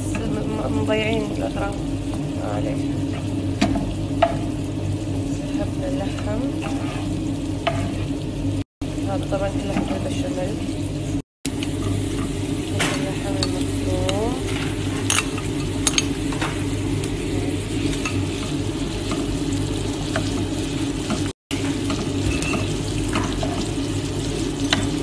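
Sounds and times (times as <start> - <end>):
onions and meat sizzling in pan: 0.0 - 25.0
spatula scraping pan: 6.0 - 8.3, 14.1 - 16.9.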